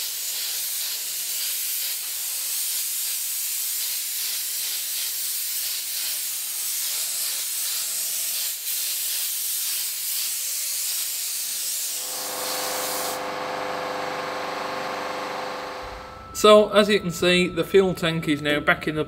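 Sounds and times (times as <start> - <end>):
paint spray gun hissing: 0.0 - 15.8
steady hum: 12.0 - 17.7.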